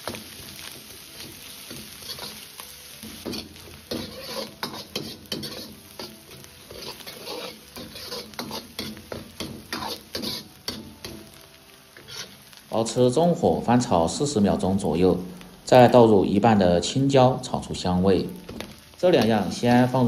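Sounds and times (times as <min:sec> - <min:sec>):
oil sizzling: 0:00.0 - 0:20.0
metal ladle scraping a wok: 0:02.0 - 0:02.5, 0:03.2 - 0:09.1, 0:09.7 - 0:10.8, 0:12.0 - 0:12.4.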